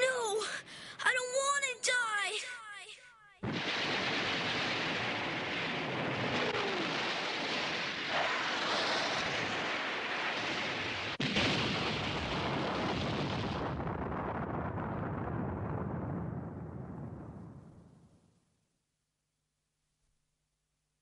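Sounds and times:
explosion roaring rush: 0:03.4 - 0:17.7.

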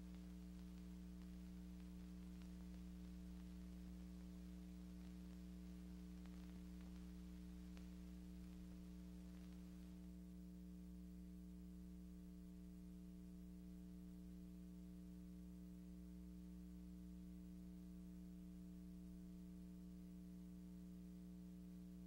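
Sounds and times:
faint ticks: 0:00.0 - 0:10.1
faint hiss: 0:00.0 - 0:10.3
low electrical hum: 0:00.0 - 0:22.0.

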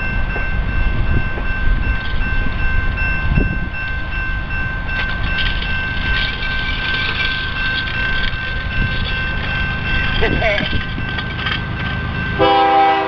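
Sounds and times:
crossing warning bell ringing: 0:00.0 - 0:13.0
low rumble of train: 0:00.0 - 0:13.0.

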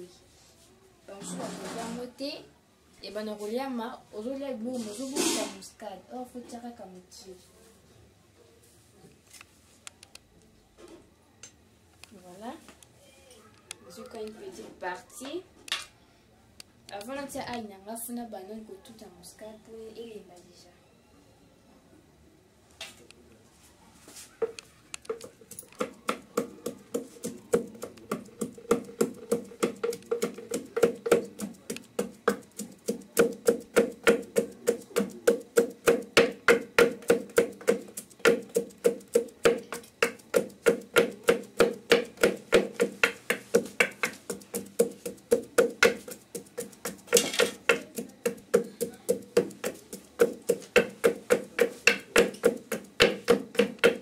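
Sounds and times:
pestle pounding in metal mortar: 0:25.1 - 0:54.0.

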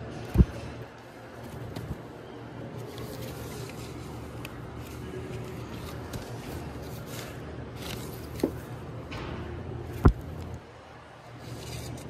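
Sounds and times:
steady low hum: 0:00.0 - 0:12.0
record sleeves sliding: 0:01.3 - 0:08.7.

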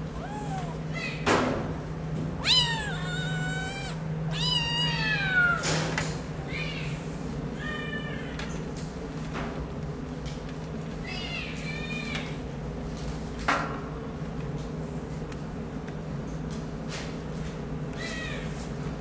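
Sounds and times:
kittens meowing: 0:00.0 - 0:01.2, 0:02.4 - 0:05.8.

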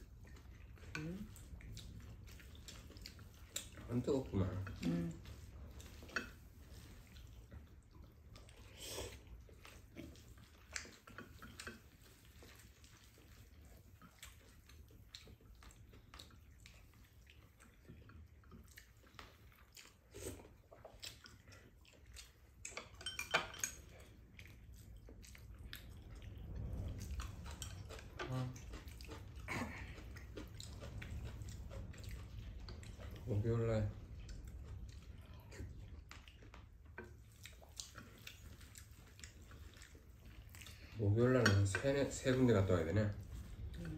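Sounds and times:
faint low hum: 0:00.0 - 0:43.9
soft chewing: 0:00.0 - 0:43.9
utensils clinking on bowls: 0:22.8 - 0:24.0.

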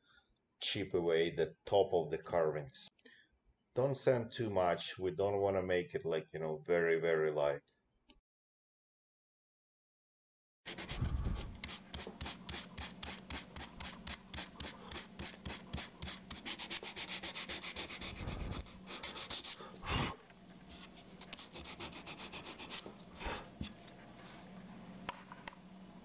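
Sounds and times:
sandpaper rubbing on wood: 0:10.7 - 0:19.7, 0:20.8 - 0:22.9.

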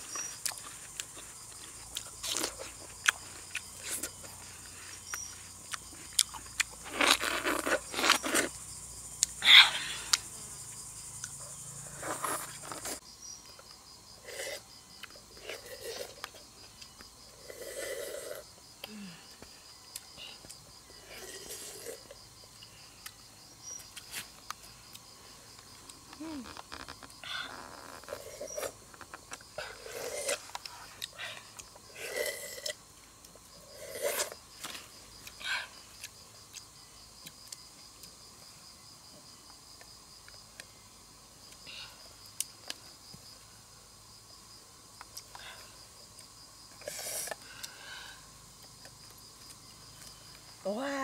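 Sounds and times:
crickets trilling: 0:00.0 - 0:51.0.

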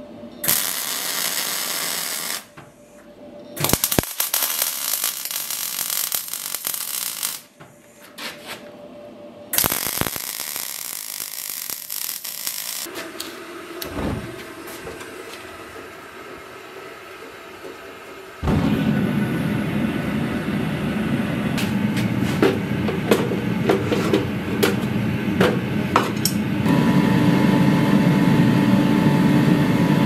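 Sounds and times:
welder arc crackling and sizzling: 0:00.4 - 0:02.5, 0:03.6 - 0:07.5, 0:09.6 - 0:22.2.

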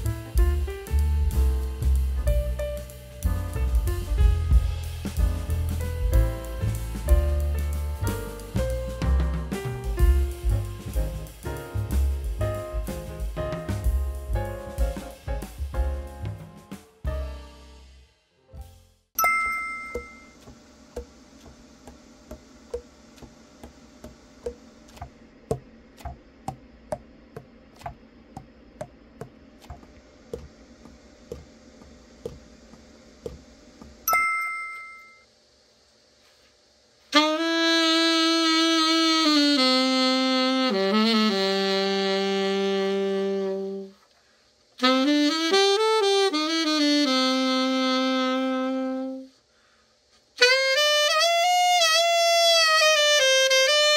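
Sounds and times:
chime: 0:19.2 - 0:20.4, 0:34.1 - 0:35.2
saxophone playing: 0:37.1 - 0:44.0, 0:44.8 - 0:49.4, 0:50.4 - 0:53.9.

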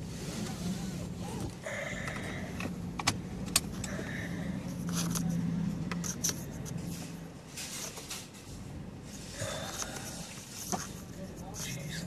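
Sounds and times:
car low hum: 0:00.0 - 0:12.0
seatbelt buckle clicking: 0:02.1 - 0:04.0.

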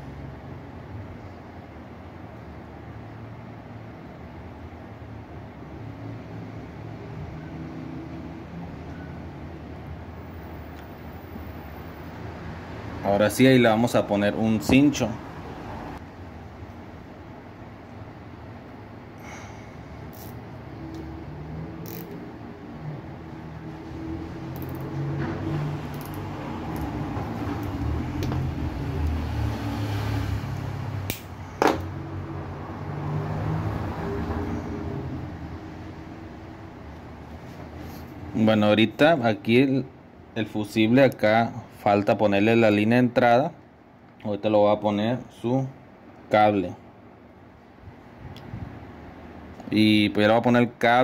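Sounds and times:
low background hum: 0:00.0 - 0:29.6
handling wire leads: 0:20.0 - 0:21.1, 0:23.7 - 0:29.2
sharp snap: 0:31.0 - 0:31.9.

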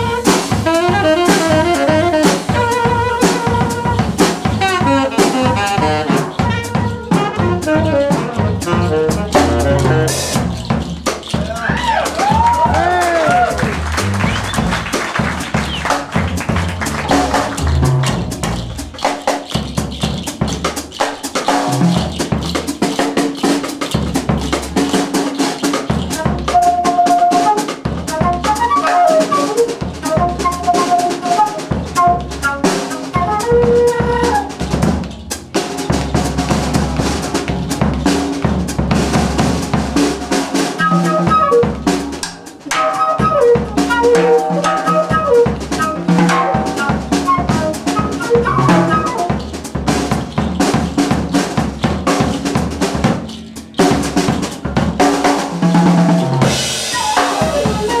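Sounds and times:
bass line: 0:00.0 - 0:20.6
wind instrument melody: 0:00.0 - 0:37.8, 0:40.6 - 0:58.0
drum kit playing: 0:00.0 - 0:58.0.

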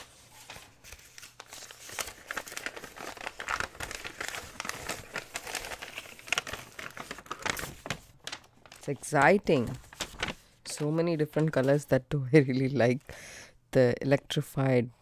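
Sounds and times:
packing paper crinkling: 0:00.0 - 0:11.8.

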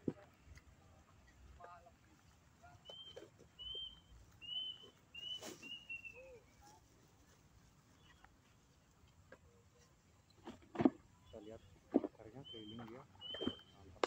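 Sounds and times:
bird whistling calls: 0:02.8 - 0:06.4, 0:12.4 - 0:13.9.

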